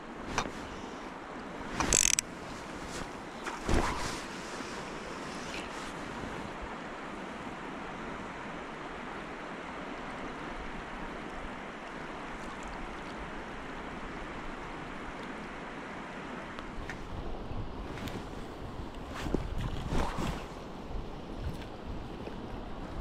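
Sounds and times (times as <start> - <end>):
river rushing: 0.0 - 18.8
wind buffeting microphone: 16.7 - 23.0.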